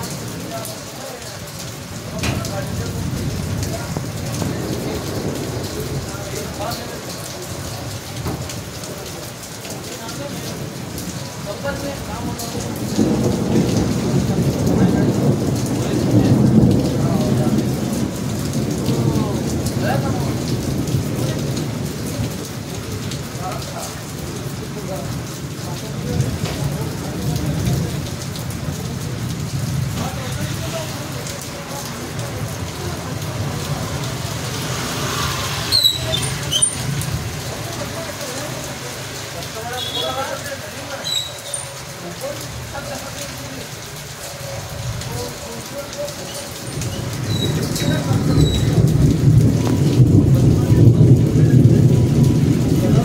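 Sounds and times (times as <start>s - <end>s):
steady rain: 0.0s - 53.0s
thunder rolling: 2.0s - 8.8s, 11.6s - 25.2s, 46.5s - 53.0s
high-pitched squeaks: 35.7s - 36.9s, 41.0s - 41.8s.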